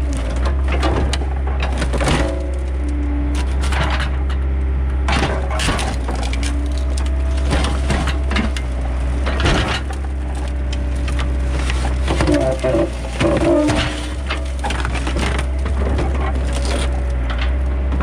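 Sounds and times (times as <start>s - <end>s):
excavator engine drone: 0.0s - 18.0s
sheet metal and glass crunching: 5.1s - 17.5s.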